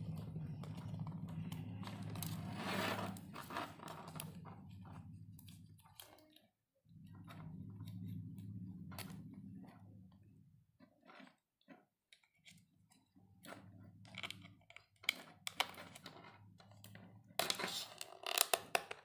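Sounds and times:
steady low hum: 0:00.0 - 0:05.9, 0:06.9 - 0:10.5
handling clicks and scraping: 0:00.0 - 0:06.5.

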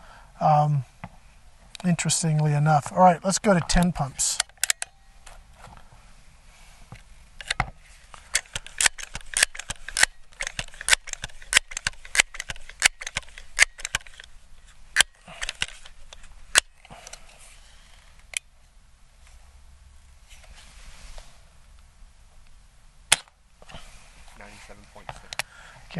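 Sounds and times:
air pistol pump lever clicking: 0:04.4 - 0:05.0, 0:07.4 - 0:07.7, 0:08.3 - 0:14.3, 0:15.0 - 0:17.2.

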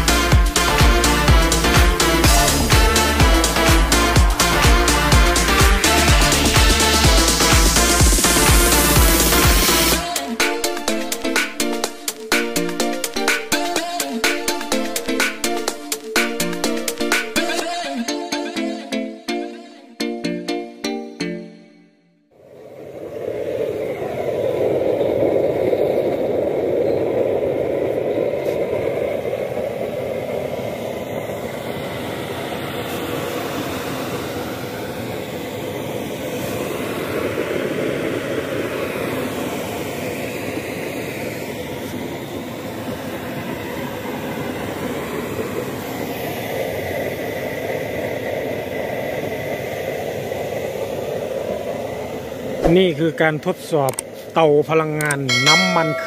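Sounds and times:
stove blower rushing: 0:00.0 - 0:10.2.

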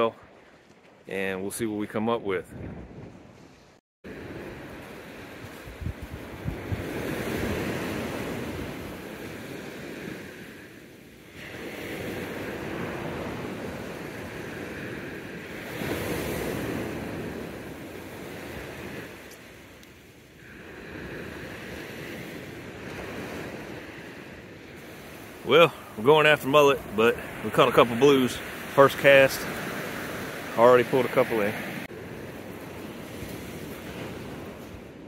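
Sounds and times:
ocean waves breaking on beach: 0:00.0 - 0:35.0
wind buffeting microphone: 0:02.2 - 0:10.4.

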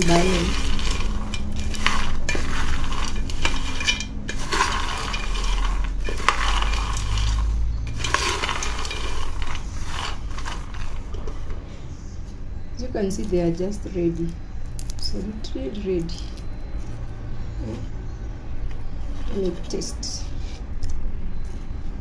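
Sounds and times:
peanuts rattling in a pan: 0:00.0 - 0:11.5, 0:13.1 - 0:16.4.

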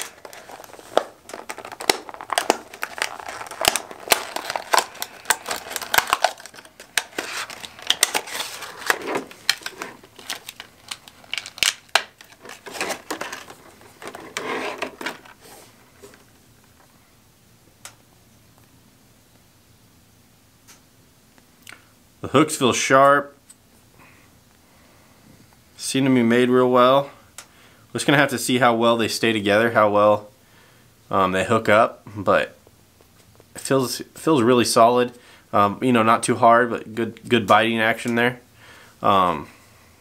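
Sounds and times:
plastic packaging crinkling: 0:00.0 - 0:16.3.

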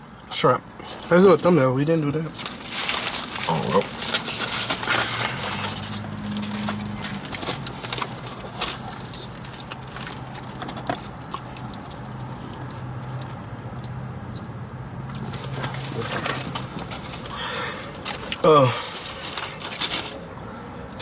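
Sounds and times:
paper wrappers rustling: 0:01.1 - 0:12.7, 0:15.2 - 0:20.4.

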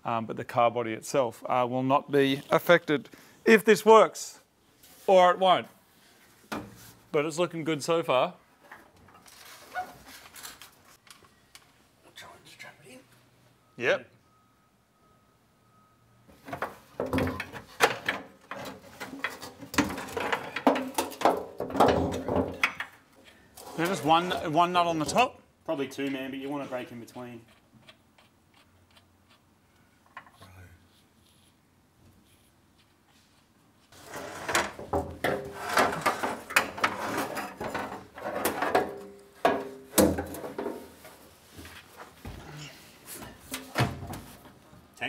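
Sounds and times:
metal strap scraping and clanking: 0:23.6 - 0:24.4, 0:34.0 - 0:39.2.

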